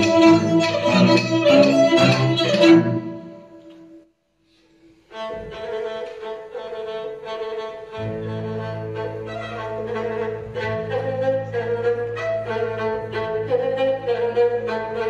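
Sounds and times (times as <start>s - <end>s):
bowed folk fiddle: 0.0s - 3.8s, 5.1s - 15.0s
low strings: 0.0s - 3.8s, 5.1s - 15.0s
string orchestra: 0.0s - 3.8s, 5.1s - 15.0s.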